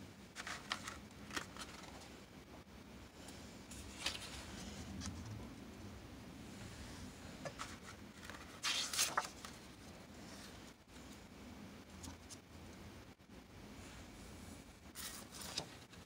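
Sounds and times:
low room hum: 0.0s - 16.0s
paper cards rustling: 0.3s - 2.2s, 3.7s - 5.3s, 7.5s - 10.8s, 14.9s - 16.0s.

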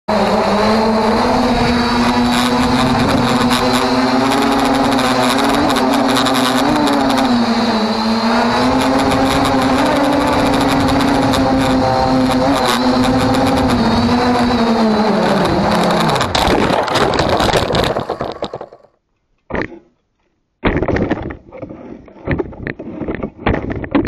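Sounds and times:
drone propellers whining: 0.1s - 18.8s.

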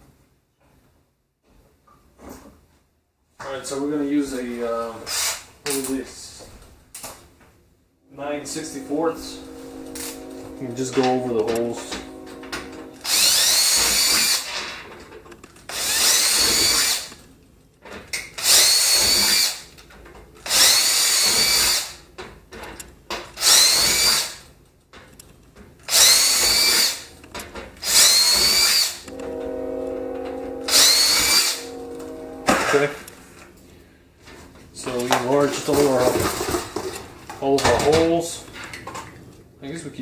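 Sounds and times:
cordless drill drilling sheet metal: 5.0s - 5.5s, 12.9s - 14.8s, 15.7s - 17.2s, 18.4s - 19.7s, 20.4s - 22.0s, 23.4s - 24.5s, 25.9s - 27.1s, 27.8s - 29.2s, 30.7s - 31.7s.

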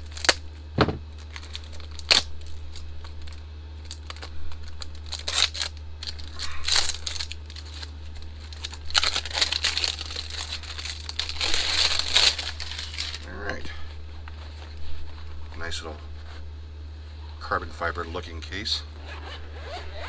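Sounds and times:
plastic wrap crinkling and tearing: 0.0s - 0.4s, 1.1s - 13.4s
steady low hum: 0.0s - 20.0s.

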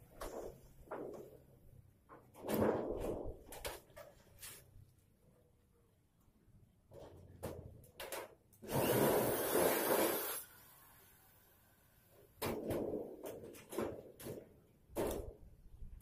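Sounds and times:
metal sheet knocks and clatter: 0.2s - 1.5s, 2.1s - 4.2s, 12.4s - 15.5s
electric drill drilling metal: 8.6s - 11.4s.

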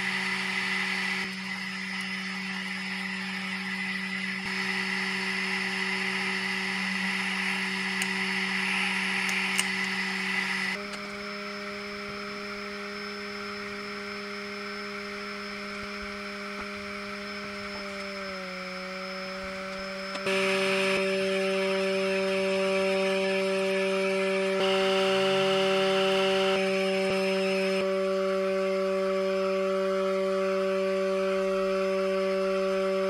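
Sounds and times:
small fan motor whining: 0.0s - 33.0s.

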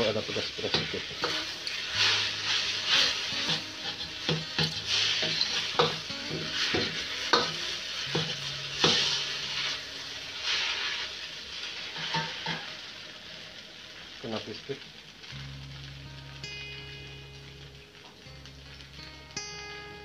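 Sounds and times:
steady sizzle: 0.0s - 20.0s
metal ladle scraping a wok: 0.8s - 6.0s.

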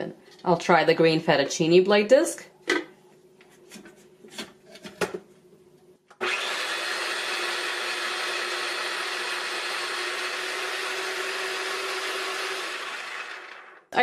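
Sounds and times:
food processor motor whirring: 6.1s - 14.0s.

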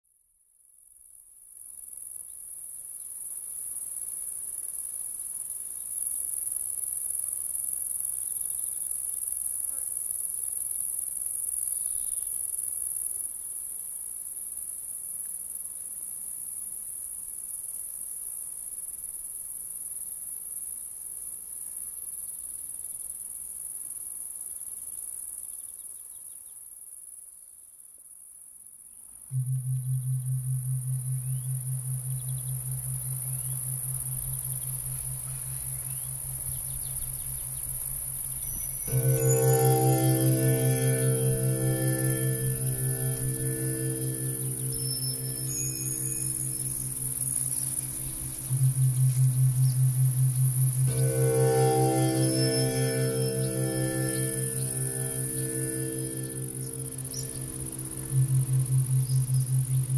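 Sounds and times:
crickets chirping: 29.3s - 59.9s.

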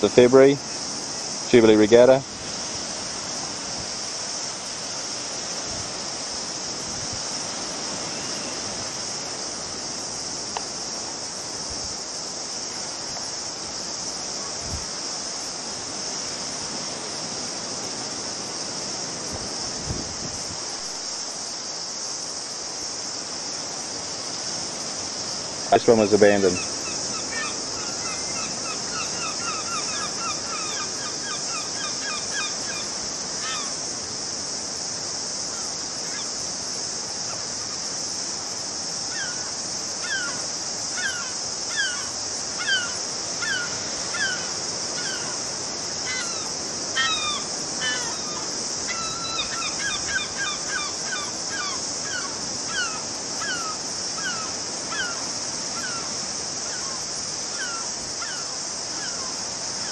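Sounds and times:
steady hiss: 0.0s - 59.9s
birds calling: 26.2s - 34.0s, 39.1s - 59.9s.

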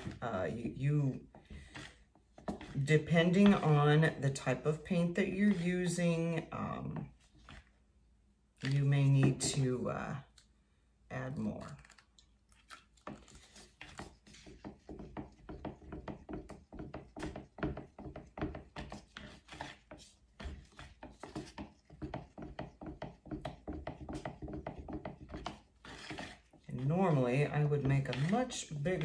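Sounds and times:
stick knocking in plastic pitcher: 13.0s - 29.0s.

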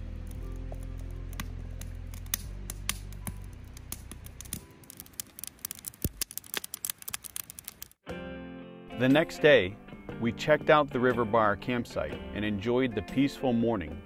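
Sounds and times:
background music: 0.0s - 5.2s, 8.0s - 14.0s
campfire crackling and popping: 0.0s - 8.0s.

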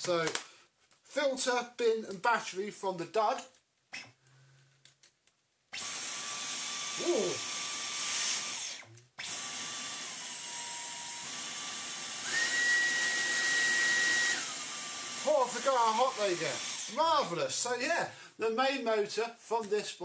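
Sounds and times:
vacuum motor whining: 5.8s - 17.0s.

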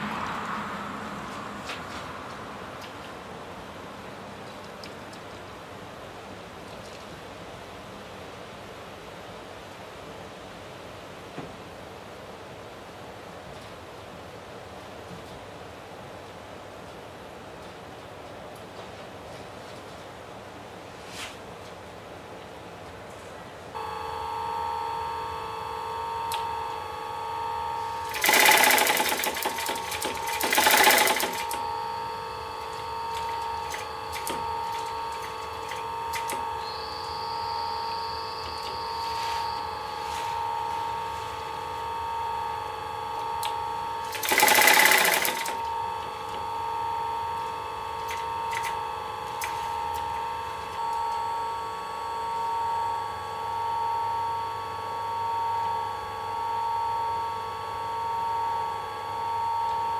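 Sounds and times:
steady hum: 0.0s - 59.9s
sewing machine stitching: 28.0s - 31.6s, 44.0s - 45.7s.

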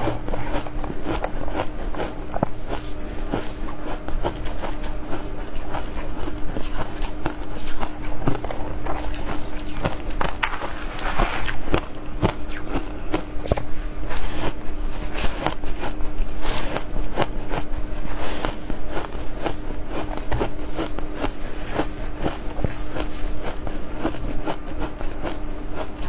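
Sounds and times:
crunching shaved ice: 0.0s - 26.0s
steady low hum: 0.0s - 26.0s.

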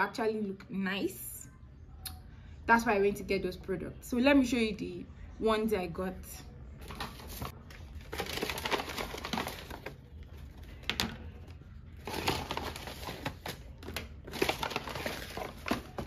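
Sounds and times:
paper bag rustling: 6.8s - 16.0s.

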